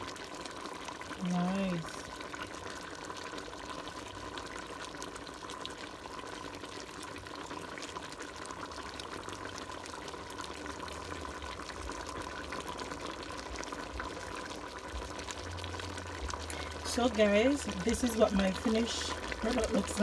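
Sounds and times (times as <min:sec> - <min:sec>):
faint steady hum: 0:00.0 - 0:20.0
stew bubbling and popping: 0:00.0 - 0:20.0.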